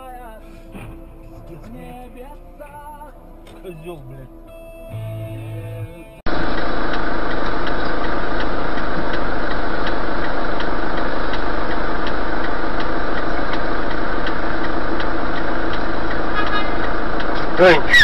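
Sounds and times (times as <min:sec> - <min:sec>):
vehicle engine running: 0:04.9 - 0:18.0.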